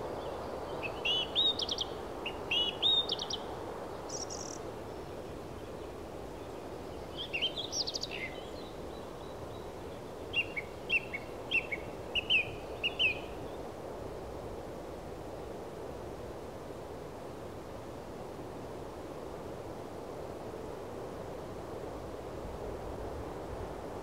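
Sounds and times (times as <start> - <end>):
steady background hiss: 0.0 - 24.0
small birds chirping: 0.2 - 13.4.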